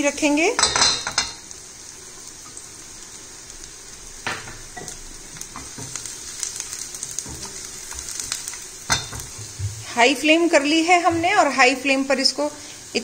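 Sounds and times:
garlic sizzling in oil: 0.0s - 13.0s
spatula scraping and tapping pan: 4.3s - 9.8s.

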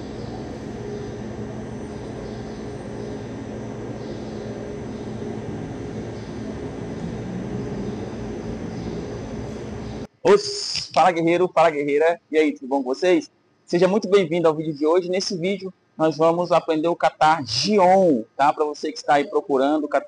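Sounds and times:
low constant hum: 0.0s - 20.0s.

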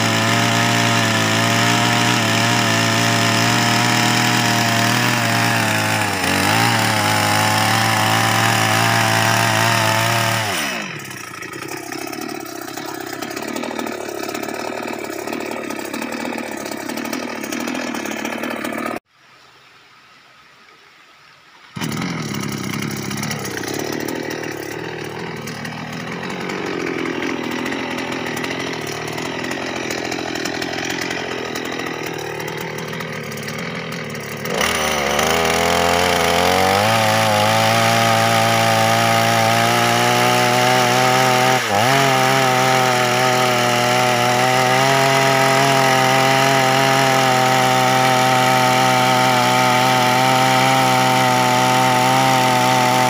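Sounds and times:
chainsaw idling and revving: 0.0s - 19.1s, 21.8s - 53.0s.

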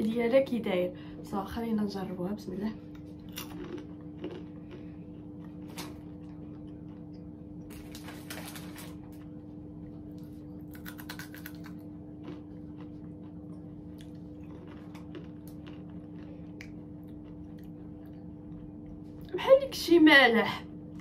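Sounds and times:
low hum: 0.0s - 21.0s
crunching snack: 3.2s - 4.9s, 10.6s - 17.7s.

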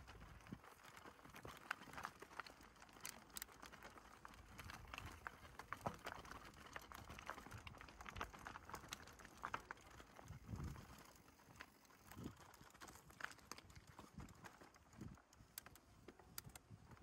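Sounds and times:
bicycle clicking and crunching: 0.0s - 17.0s.

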